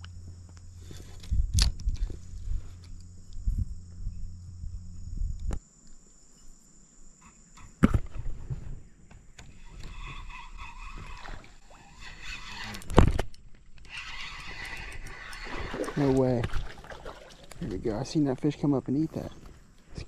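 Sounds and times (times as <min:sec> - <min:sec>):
fishing reel whirring: 0:09.5 - 0:16.8.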